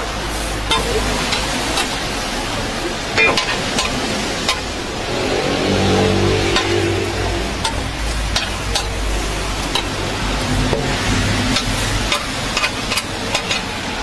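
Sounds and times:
frying sizzle: 0:00.0 - 0:14.0
metal plate scraping on griddle: 0:03.2 - 0:14.0.

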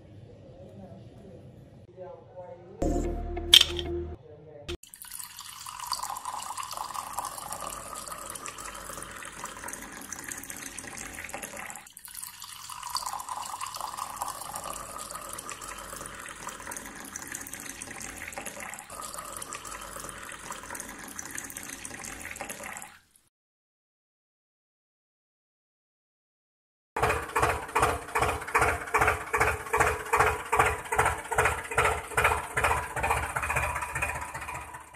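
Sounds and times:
water trickling into tank: 0:04.8 - 0:23.3.

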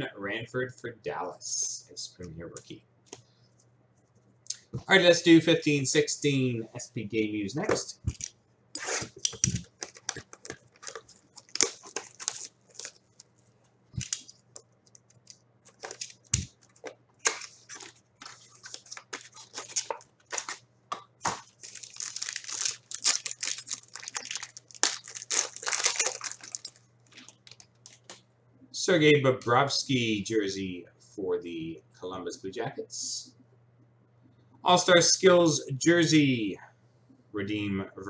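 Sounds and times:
wrapping tearing and crinkling: 0:08.1 - 0:20.6, 0:21.3 - 0:28.2.

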